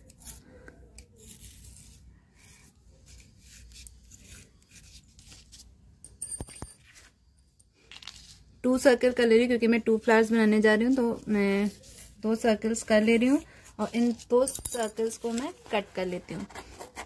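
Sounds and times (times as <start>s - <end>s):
pencil scratching faintly: 0.0s - 5.5s, 10.1s - 14.4s, 15.0s - 17.0s.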